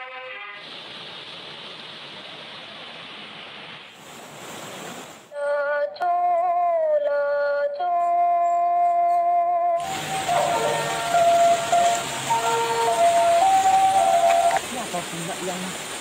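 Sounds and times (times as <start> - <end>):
water rushing over rocks: 0.6 - 5.3, 9.8 - 16.0
person singing long notes: 5.4 - 14.6.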